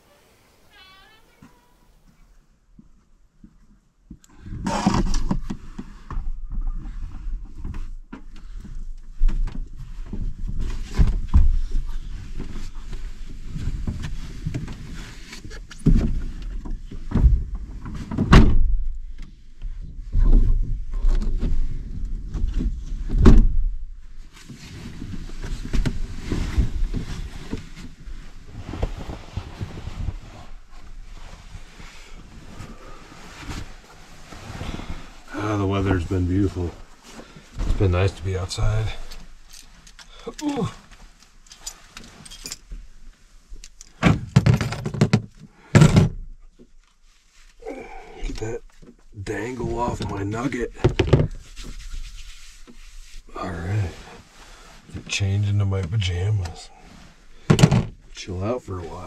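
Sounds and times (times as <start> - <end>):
rustling of bedding and clothing: 4.7 - 18.3, 24.0 - 44.9, 46.4 - 59.0
knocks and thumps on truck bed: 44.0 - 46.2.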